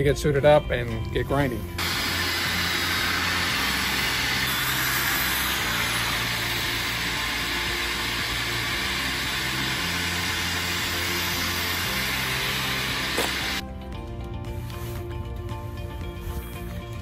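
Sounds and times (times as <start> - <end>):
power sander running: 1.8 - 13.6.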